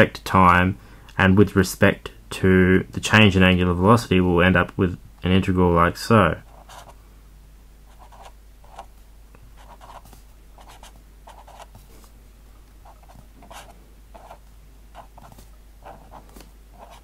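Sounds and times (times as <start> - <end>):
steady low hum: 0.0 - 17.0
pen scratching on paper: 6.5 - 7.0, 7.9 - 8.9, 9.6 - 11.8, 12.8 - 17.0.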